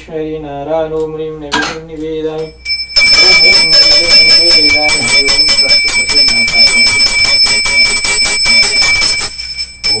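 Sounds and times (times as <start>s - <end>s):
hand bell ringing rapidly: 2.4s - 10.0s.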